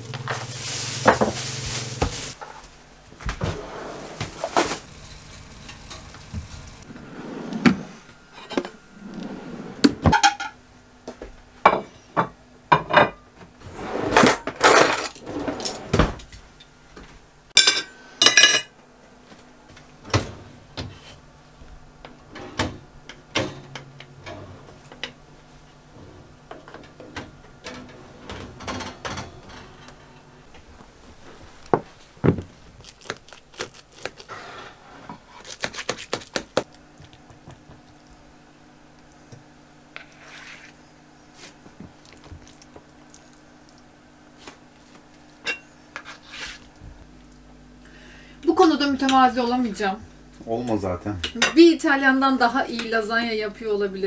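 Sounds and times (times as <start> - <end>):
dishes and cutlery clinking: 17.6 - 18.7.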